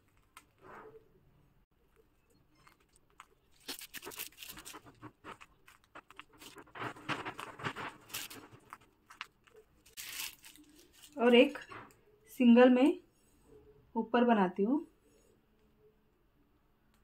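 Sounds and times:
plastic piping bag crinkling: 0:02.5 - 0:11.9.

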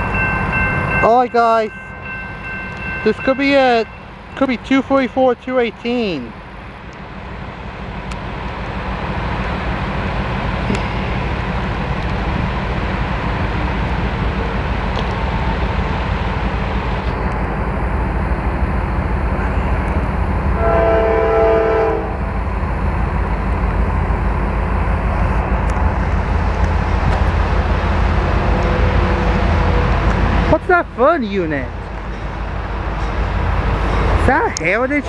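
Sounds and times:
locomotive horn chord: 0:20.6 - 0:22.2.

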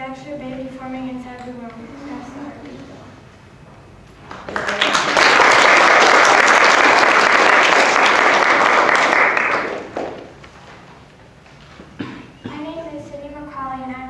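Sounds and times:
crowd applauding: 0:04.2 - 0:10.4.

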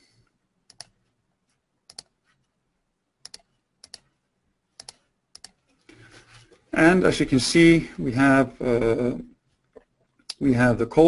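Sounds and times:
computer mouse clicking: 0:00.7 - 0:01.0, 0:01.9 - 0:02.2, 0:03.2 - 0:04.1, 0:04.8 - 0:05.8.

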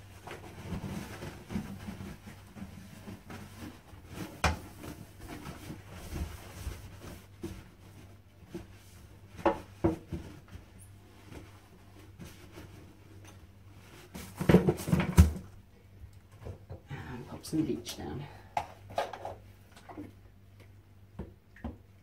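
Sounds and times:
wipes rubbing toilet: 0:00.0 - 0:14.9.

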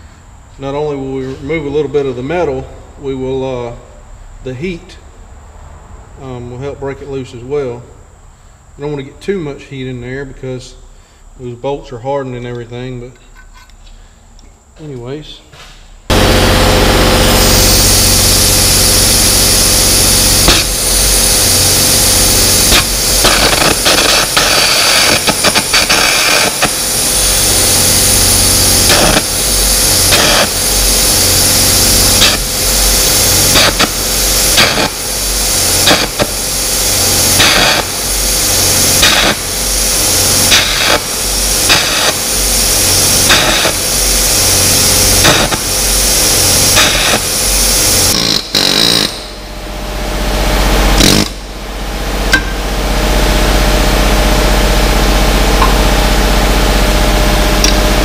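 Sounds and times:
steady electrical hum: 0:00.0 - 0:58.0
arc gouging hiss and crackle: 0:16.1 - 0:49.3, 0:51.0 - 0:51.4.

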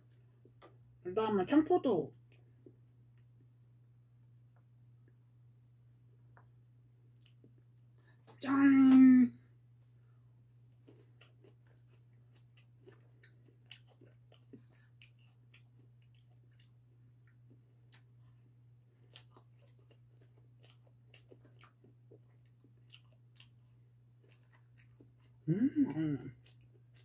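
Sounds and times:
quiet chewing: 0:00.0 - 0:00.8, 0:04.2 - 0:08.4, 0:10.6 - 0:27.0
steady low hum: 0:00.0 - 0:27.0.

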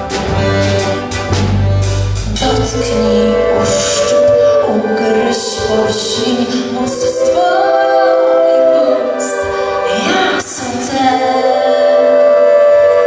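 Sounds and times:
accordion: 0:00.0 - 0:06.8
drums: 0:00.0 - 0:13.0
voices singing long notes: 0:02.2 - 0:13.0.

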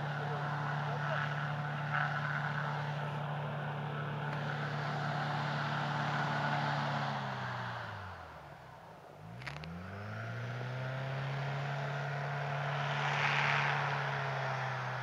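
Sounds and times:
hovercraft engine and propeller: 0:00.0 - 0:08.4.

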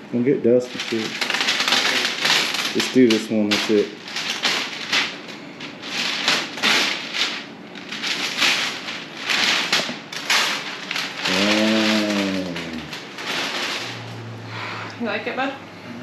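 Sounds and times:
paper and tape peeling: 0:00.7 - 0:14.2.

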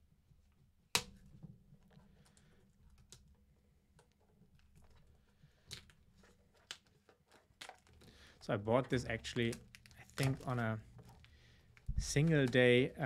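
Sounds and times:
plastic box clicks: 0:09.1 - 0:12.7.

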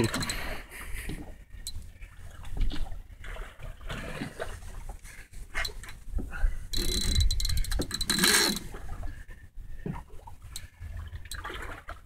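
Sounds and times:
fishing reel drag buzzing: 0:06.7 - 0:08.6.

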